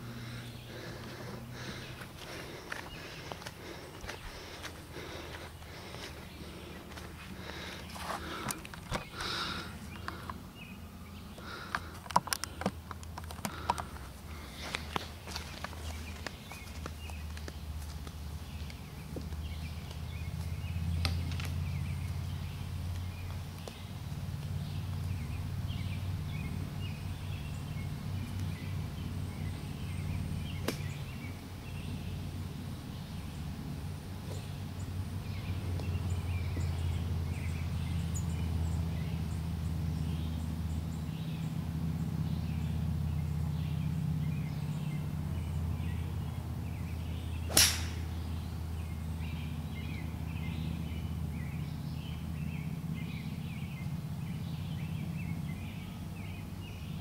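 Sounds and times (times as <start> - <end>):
steady low hum: 0.0 - 57.0
golf club striking ball: 30.6 - 30.9, 47.5 - 48.2.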